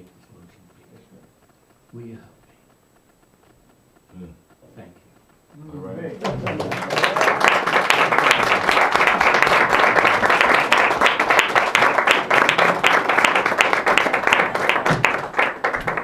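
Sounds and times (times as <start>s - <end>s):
audience applauding: 6.2s - 16.0s.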